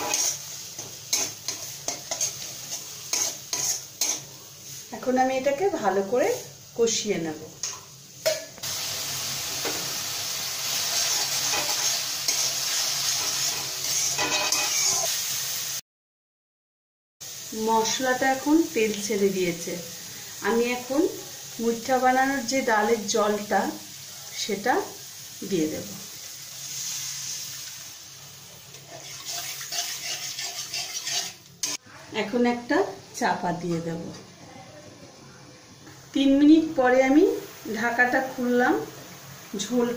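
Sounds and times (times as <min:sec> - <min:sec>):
spatula stirring and scraping: 0:00.0 - 0:04.9, 0:10.9 - 0:15.1, 0:28.7 - 0:31.8
spice paste sizzling in oil: 0:00.0 - 0:15.8, 0:17.2 - 0:34.0, 0:35.6 - 0:39.9
water pouring into pan: 0:28.7 - 0:31.4.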